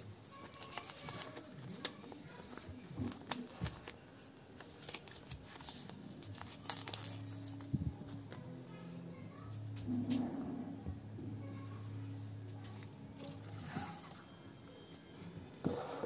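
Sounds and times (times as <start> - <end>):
paper leaflets rustling: 0.2 - 8.2
sharp paper snaps: 3.0 - 4.0.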